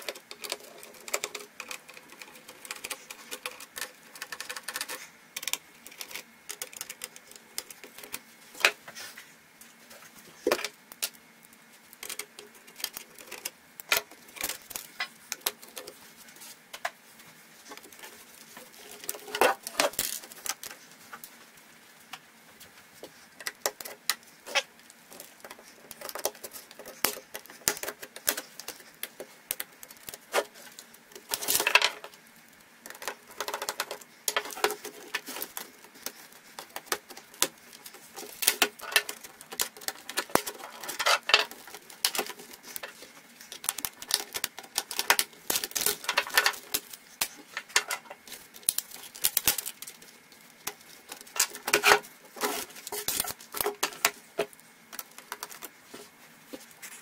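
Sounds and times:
laptop parts clicking and tapping: 0.0 - 8.8, 23.4 - 32.2, 32.8 - 50.0.

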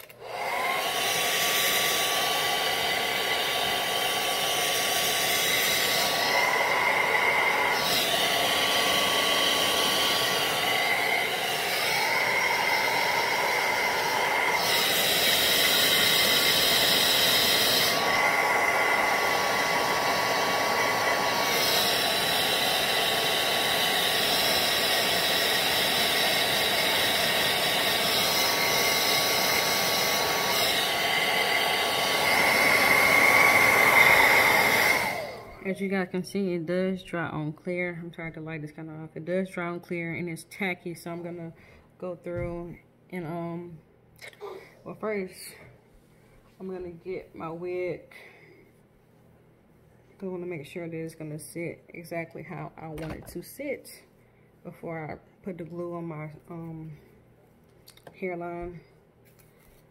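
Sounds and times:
hair dryer blowing: 0.0 - 36.0.

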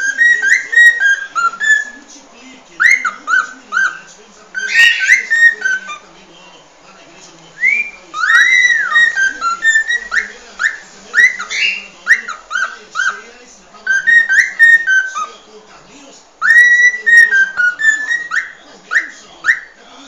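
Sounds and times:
cockatiel whistling song: 0.0 - 2.0, 2.8 - 6.0, 7.6 - 13.2, 13.8 - 15.4, 16.4 - 19.8.

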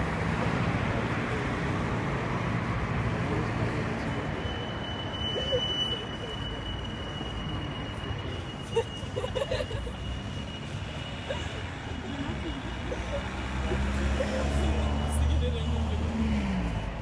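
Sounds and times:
street traffic noise: 0.0 - 17.0
high-pitched whine: 0.5 - 12.9.

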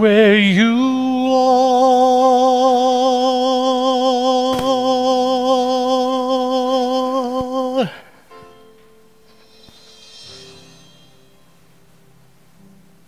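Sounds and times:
person singing long note: 0.6 - 8.0
soft instrumental accompaniment: 8.2 - 13.0.

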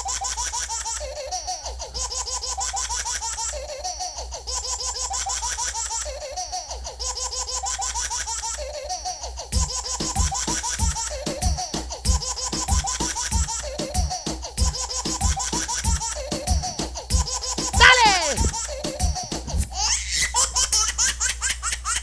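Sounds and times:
dance music over sound system: 17.8 - 18.5.

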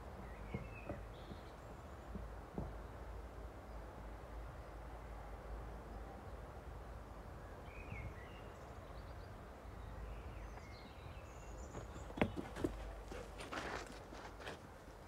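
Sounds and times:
faint birds chirping: 0.0 - 14.0.

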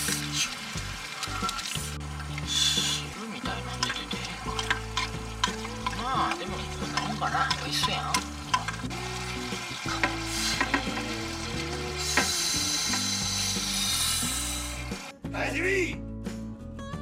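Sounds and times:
food sizzling in a frying pan: 0.0 - 15.1
spatula scraping a pan: 3.8 - 8.9, 9.9 - 11.3.

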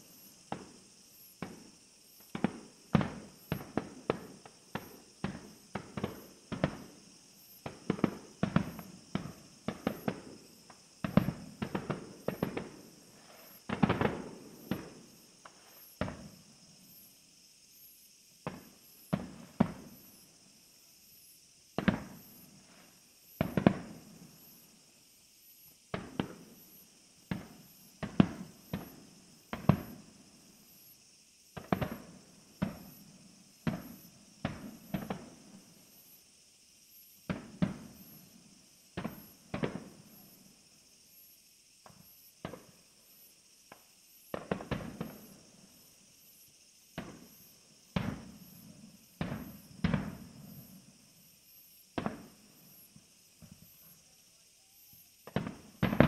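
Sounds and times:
fireworks bangs: 1.4 - 16.4, 18.5 - 20.0, 21.8 - 22.4, 23.4 - 24.0, 25.9 - 26.6, 27.3 - 30.0, 31.6 - 33.0, 33.6 - 35.6, 37.3 - 38.2, 39.0 - 40.0, 43.7 - 45.4, 46.9 - 50.6, 52.0 - 52.4, 55.2 - 56.0.

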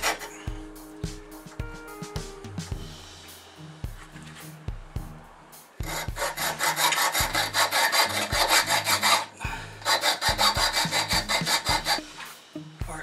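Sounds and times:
hacksaw cutting steel: 0.0 - 0.4, 5.8 - 12.4.

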